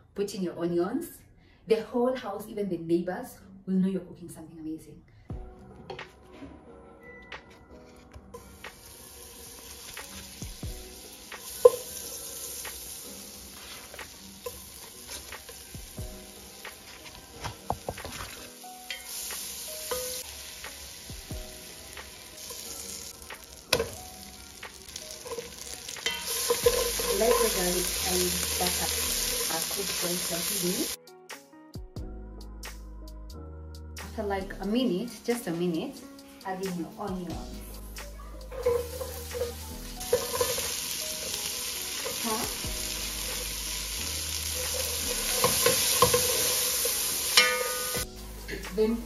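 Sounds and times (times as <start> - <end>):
butter and garlic sizzling: 8.4 - 31.0, 37.4 - 49.0
spatula scraping pot: 25.1 - 28.1, 38.4 - 40.8
spatula knocking pot: 26.0 - 27.6.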